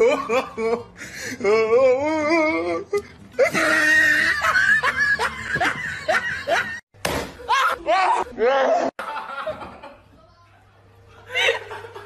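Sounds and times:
person laughing: 3.4 - 6.8.

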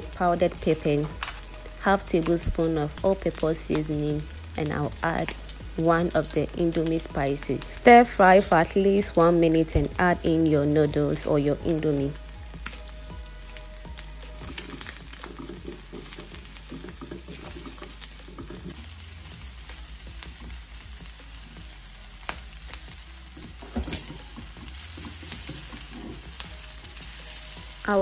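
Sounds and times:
stir-fry sizzling in a pan: 0.0 - 28.0
wooden spatula scraping: 14.4 - 18.8, 23.3 - 27.6.

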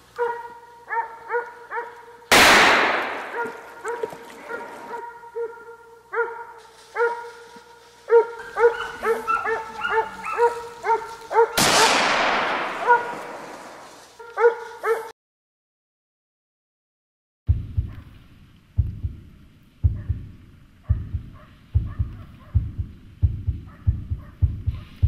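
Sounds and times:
dogs barking: 0.1 - 2.2, 2.9 - 15.1, 19.9 - 20.2, 20.8 - 22.8, 23.5 - 25.0
gunshot with echo: 2.3 - 3.7, 11.5 - 13.9.

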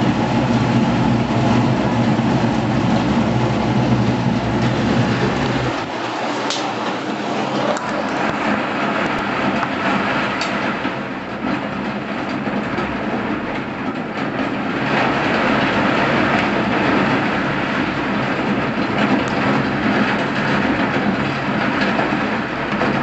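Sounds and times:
heavy rain pouring: 0.0 - 23.0.

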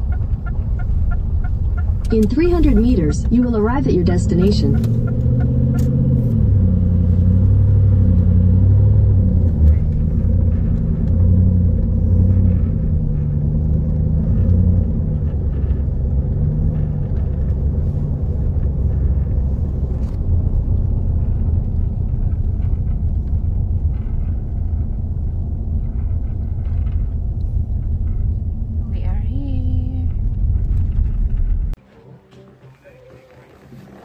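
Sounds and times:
car engine and tyres rumbling: 0.0 - 34.0.

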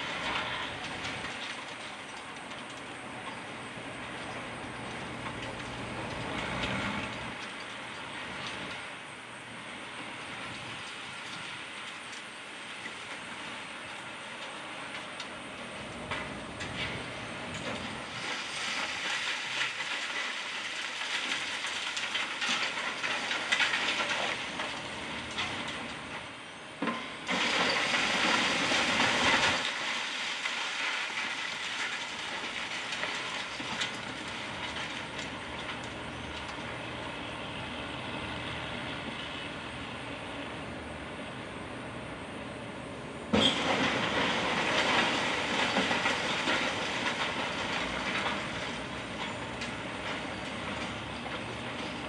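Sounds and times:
settling debris: 0.0 - 37.2, 43.3 - 52.0
rubble clattering and crashing: 16.2 - 26.2, 26.8 - 36.6, 43.4 - 52.0.

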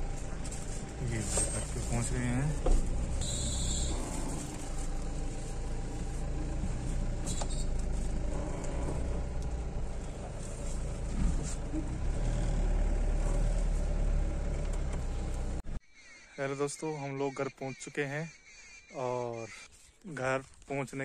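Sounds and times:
car engine and road noise: 0.0 - 15.8.

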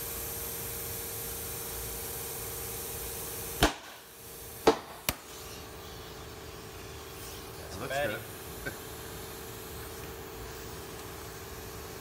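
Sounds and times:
compressed air hissing into tire: 0.0 - 12.0
steady hum: 0.0 - 12.0.

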